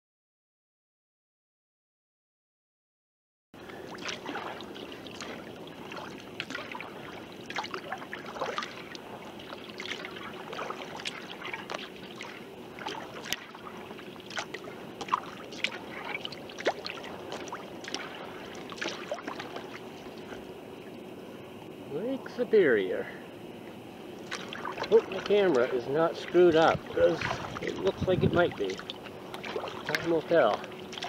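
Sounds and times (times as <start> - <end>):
faint steady hum: 3.6 - 31.0
water splashing and dripping: 3.8 - 20.2, 24.2 - 31.0.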